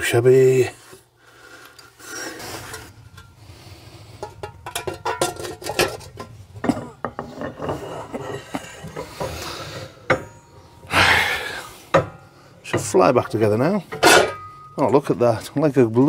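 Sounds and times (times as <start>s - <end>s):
metal clinks and scrapes: 2.0s - 3.4s, 4.1s - 10.8s, 13.9s - 14.8s.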